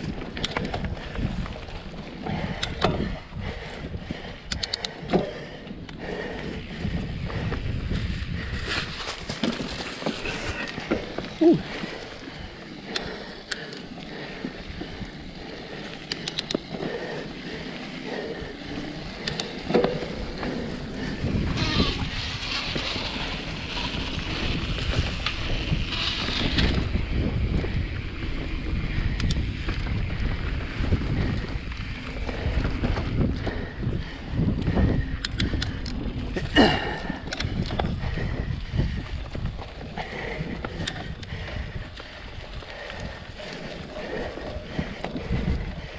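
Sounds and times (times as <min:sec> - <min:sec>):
tyres rolling over leaves and dirt: 0:00.0 - 0:03.8, 0:05.6 - 0:35.2, 0:35.9 - 0:45.9
wind rumble on microphone: 0:00.0 - 0:13.5, 0:14.1 - 0:45.9
bike clicks and rattles: 0:00.0 - 0:45.9.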